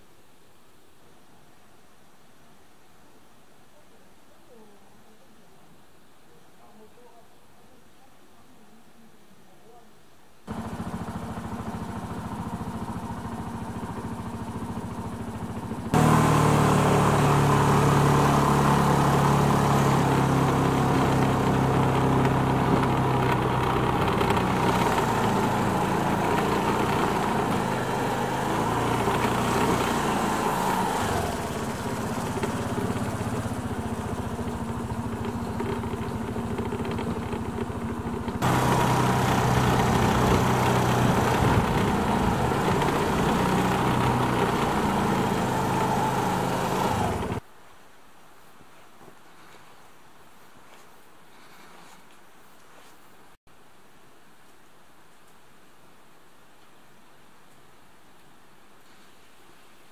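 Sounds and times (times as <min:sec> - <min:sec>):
engine droning hum: 0:10.5 - 0:47.4.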